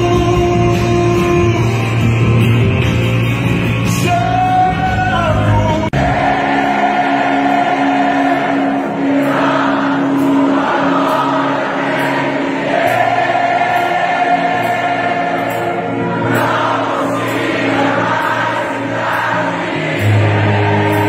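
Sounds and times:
choir singing held chords: 5.9s - 21.0s.

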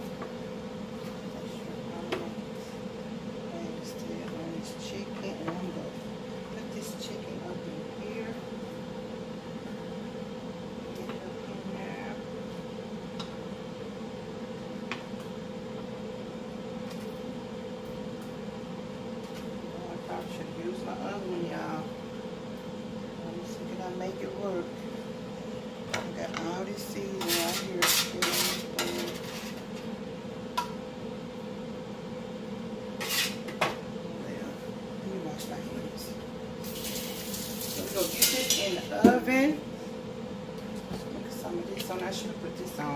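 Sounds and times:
steady mechanical hum: 0.0s - 42.9s
brief scrape on metal: 33.0s - 33.4s.

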